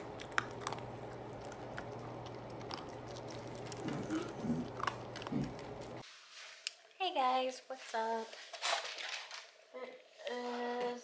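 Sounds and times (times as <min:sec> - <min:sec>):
dog chewing dry kibble: 0:00.0 - 0:06.0
low steady hum: 0:00.0 - 0:08.4.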